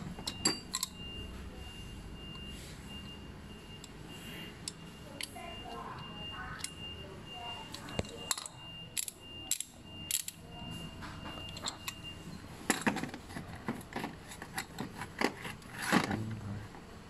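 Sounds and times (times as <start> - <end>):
metal sockets clicking and clinking: 0.2 - 1.0, 7.7 - 10.4, 11.4 - 12.0, 12.7 - 16.1.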